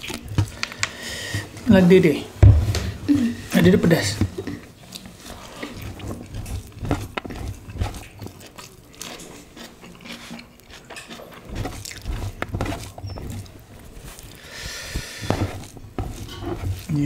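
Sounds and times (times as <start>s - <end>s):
chewing and mouth smacks: 0.0s - 1.0s, 4.4s - 17.0s.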